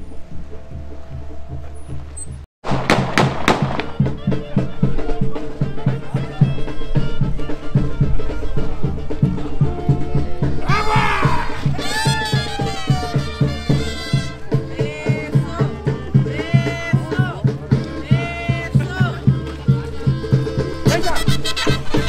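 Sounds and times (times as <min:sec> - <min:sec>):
sharp bangs: 0:02.6 - 0:04.8
brass band music: 0:02.6 - 0:22.0.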